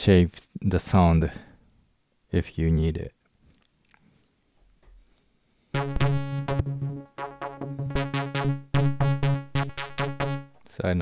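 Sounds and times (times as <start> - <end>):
synthesizer repeated low notes: 5.8 - 10.7.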